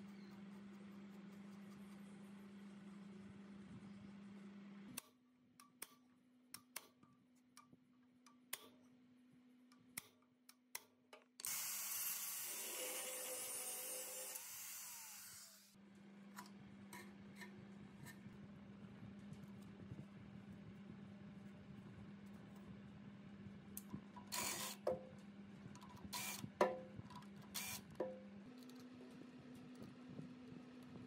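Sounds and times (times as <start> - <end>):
angle grinder cutting metal: 11.4 - 15.7.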